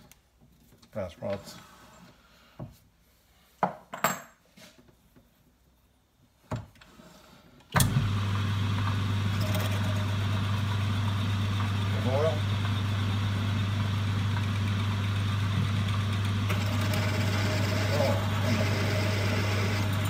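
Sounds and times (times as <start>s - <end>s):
lathe motor humming: 7.8s - 20.0s.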